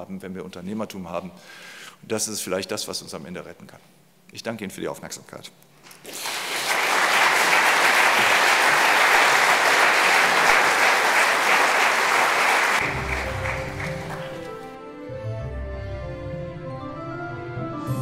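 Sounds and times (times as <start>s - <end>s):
audience applauding: 6.0s - 14.8s.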